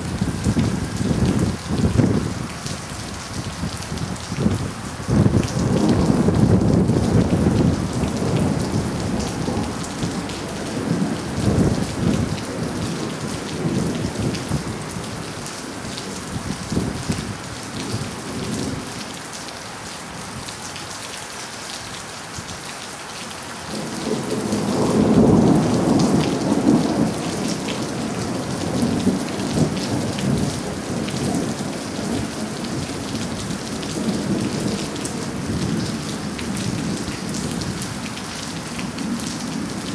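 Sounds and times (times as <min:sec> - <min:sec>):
heavy rain falling: 0:00.0 - 0:39.9
rolling thunder: 0:03.5 - 0:14.9, 0:23.7 - 0:34.8.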